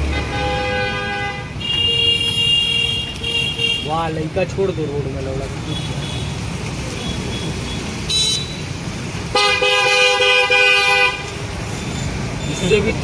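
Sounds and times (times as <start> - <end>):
car horn: 0.0 - 4.0, 8.1 - 8.6, 9.3 - 11.4.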